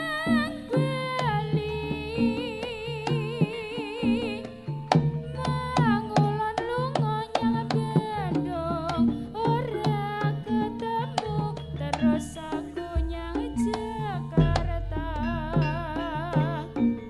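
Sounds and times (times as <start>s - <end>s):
hand drums: 0.0s - 17.0s
wavering sliding melody: 8.0s - 17.0s
steady bass: 13.0s - 17.0s.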